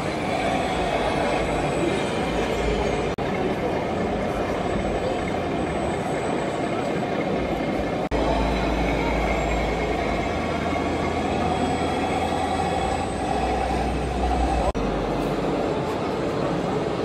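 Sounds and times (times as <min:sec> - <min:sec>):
diesel truck engine rumble: 0:07.2 - 0:16.9.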